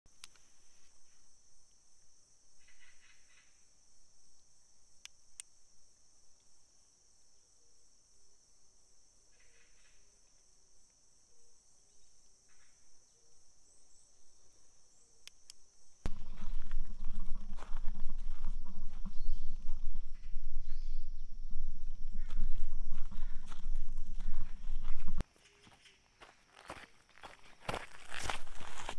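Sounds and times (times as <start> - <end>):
high insect drone: 0.1 - 28.9
sharp clicks: 15.2 - 15.6
short chirping calls: 18.3 - 26.0.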